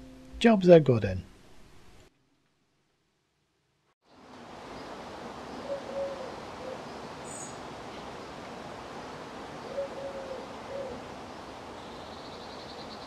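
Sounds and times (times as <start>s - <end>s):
steady outdoor hiss: 0.0s - 13.0s
dove cooing: 5.6s - 7.4s, 9.6s - 11.1s.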